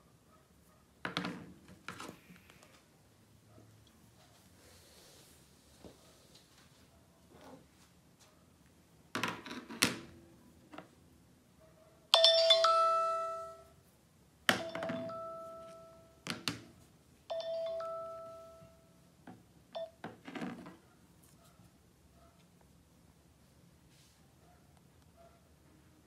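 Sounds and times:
bell-like ringtone chime: 12.2 - 13.7, 14.6 - 16.2, 17.3 - 18.9.

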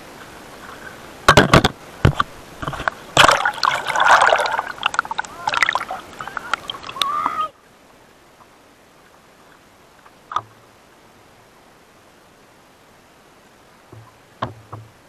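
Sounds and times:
seawater splashing and sloshing: 1.9 - 7.4.

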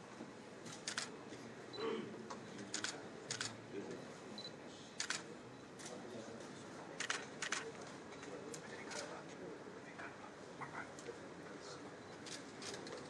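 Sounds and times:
faint room murmur: 0.0 - 13.0
camera shutters clicking: 0.8 - 1.1, 5.0 - 5.2, 7.0 - 7.7.

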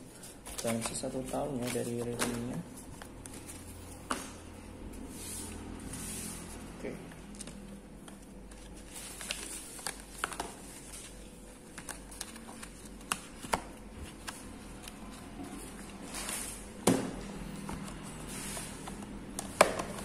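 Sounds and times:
cardboard and paper rustling: 0.2 - 4.4, 5.0 - 16.8.

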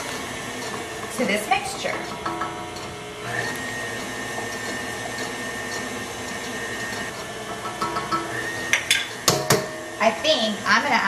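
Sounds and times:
stand mixer motor whining: 0.0 - 11.0.

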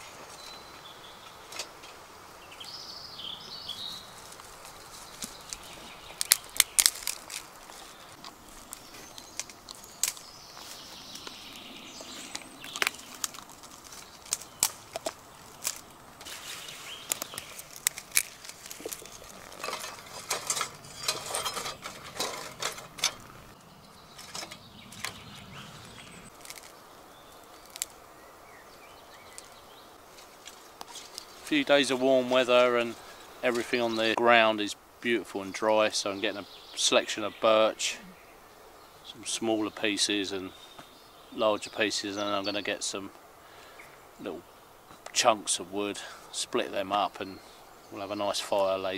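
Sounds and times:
rustling: 3.7 - 28.1, 29.2 - 34.2
twigs clattering in stove: 4.2 - 11.4, 12.0 - 28.0, 29.4 - 32.4
twigs snapping: 4.2 - 28.0, 29.3 - 31.6.

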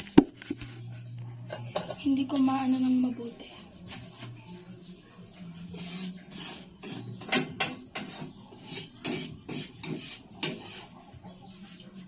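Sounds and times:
metal ladle scraping frying pan: 5.8 - 11.0.

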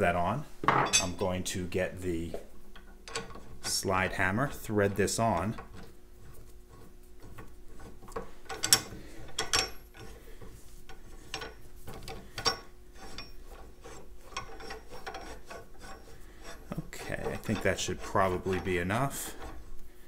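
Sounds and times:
metal threads scraping and clicking: 2.8 - 19.9.

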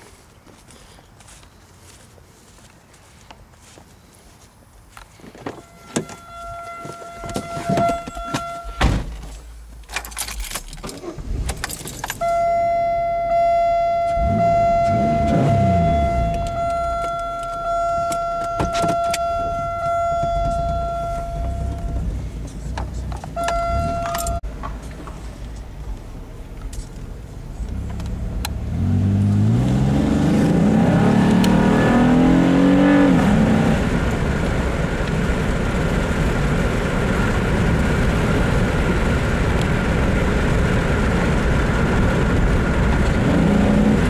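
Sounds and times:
electronic warning chime: 5.6 - 8.8, 12.2 - 22.1, 23.4 - 24.4
car engine rumbling and revving: 5.6 - 44.0
keys clicking: 9.8 - 12.2, 23.2 - 24.4.

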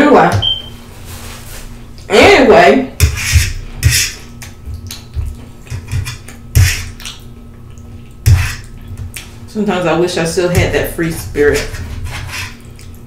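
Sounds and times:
fork scraping metal pan: 3.0 - 4.2, 5.6 - 7.0, 8.3 - 8.7, 11.0 - 12.7
close-up eating: 3.7 - 9.5, 10.8 - 13.0.

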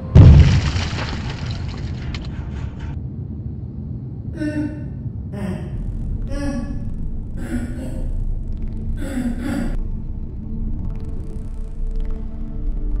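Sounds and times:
low rumbling drone: 0.0 - 13.0
short wordless vocal sounds: 4.4 - 8.2, 9.0 - 9.8.

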